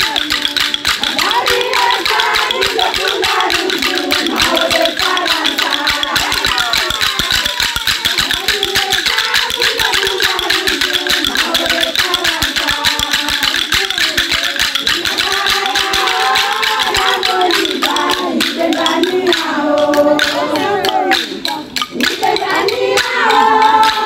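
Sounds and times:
rattle and percussion beat: 0.0s - 24.0s
voices singing: 0.0s - 24.0s.

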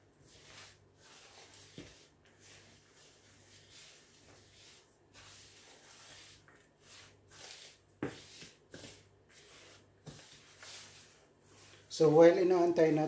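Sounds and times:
hands mixing dough rustling: 0.0s - 13.0s.

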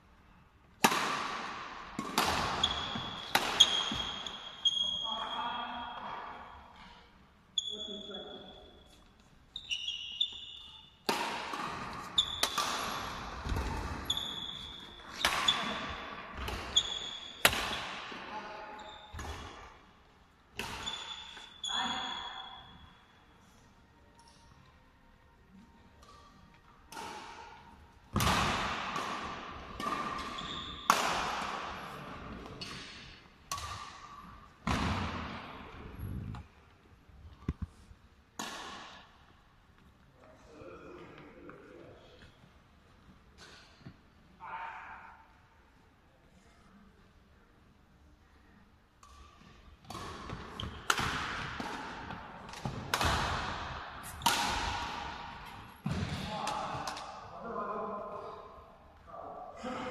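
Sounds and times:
sports hall echo: 0.0s - 59.9s
badminton rackets hitting shuttlecock: 0.7s - 4.8s, 10.4s - 18.2s, 20.5s - 21.5s, 26.0s - 35.6s, 38.4s - 39.2s, 49.0s - 57.2s.

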